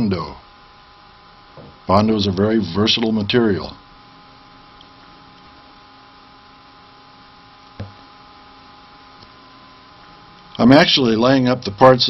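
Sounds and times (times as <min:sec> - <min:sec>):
electrical hum: 0:00.0 - 0:12.0
short knock: 0:01.6 - 0:01.8, 0:07.8 - 0:08.0.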